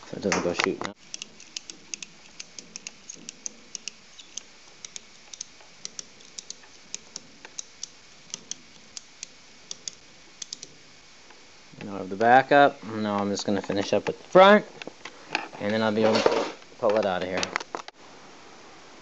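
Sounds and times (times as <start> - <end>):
ratchet strap clicking: 1.0 - 10.7.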